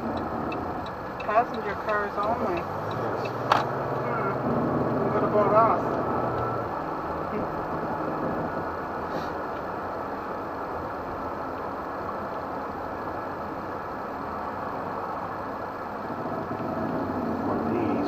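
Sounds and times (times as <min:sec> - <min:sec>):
road and engine noise in vehicle cab: 0:00.0 - 0:18.0.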